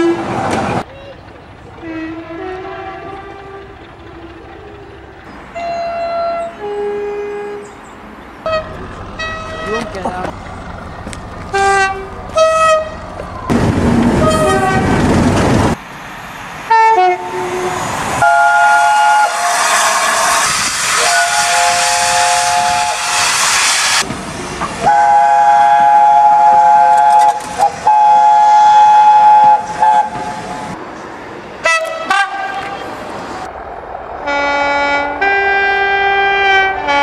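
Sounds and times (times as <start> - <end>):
train rumble and hiss: 0.0 - 37.0
short train horn toots: 1.8 - 3.7, 5.5 - 7.7, 8.5 - 9.9, 14.2 - 14.9, 16.9 - 23.4, 24.8 - 30.4
train horn chords: 1.8 - 4.8, 5.5 - 7.7, 8.4 - 10.1, 11.4 - 13.1, 14.2 - 14.9, 16.7 - 23.4, 24.8 - 30.4, 31.6 - 32.9, 34.2 - 37.0.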